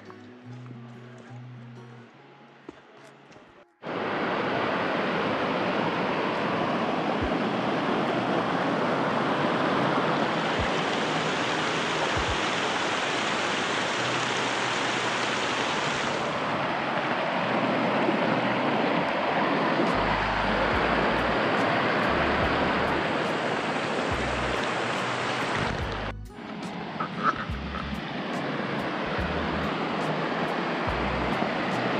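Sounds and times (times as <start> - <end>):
waterfall rushing: 3.8 - 31.9.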